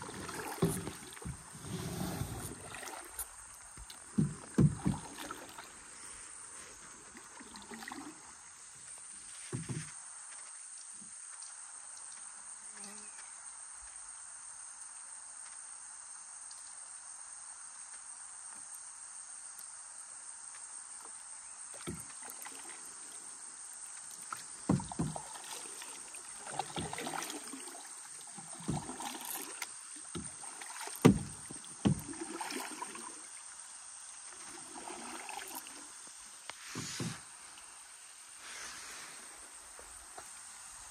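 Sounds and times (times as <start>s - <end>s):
paddles knocking against hull: 0.0s - 1.8s, 3.8s - 5.6s, 21.8s - 22.7s, 24.2s - 32.9s, 36.6s - 37.3s
kayak paddles splashing: 0.0s - 10.0s, 21.7s - 40.9s.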